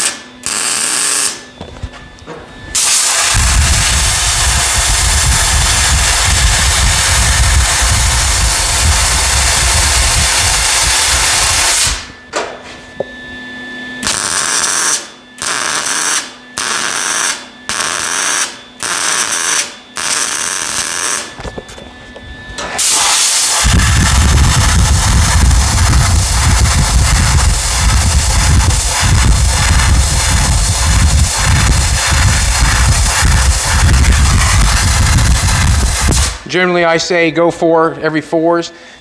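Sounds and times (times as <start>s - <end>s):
welder crackling: 0.0s - 1.4s, 2.8s - 12.1s, 14.0s - 21.4s, 22.8s - 36.6s
compressed air blow gun blasting: 2.8s - 12.1s, 22.8s - 36.5s.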